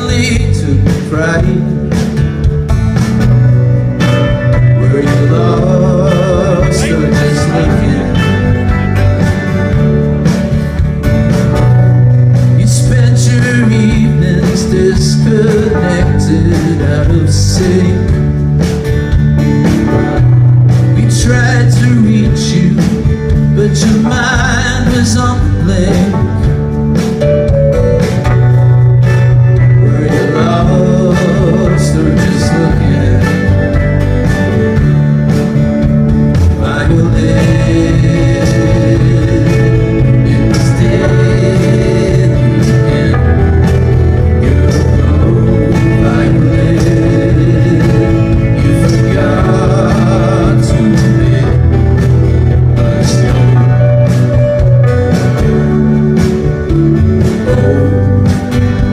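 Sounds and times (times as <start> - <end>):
person singing: 0.0 - 2.1, 4.3 - 8.9, 12.4 - 18.4, 20.8 - 26.6, 29.6 - 34.0, 36.4 - 54.6
live band playing: 0.0 - 58.9.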